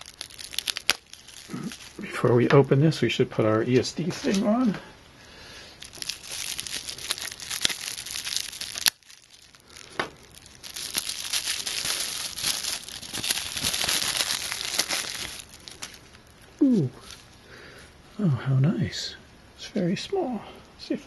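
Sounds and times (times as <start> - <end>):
plastic bag crinkling: 0.0 - 2.6, 5.6 - 17.3.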